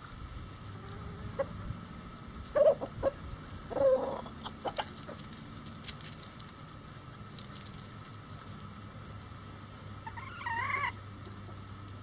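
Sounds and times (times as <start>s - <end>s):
chickens clucking: 0.7s - 1.7s, 2.4s - 5.4s, 10.0s - 11.7s.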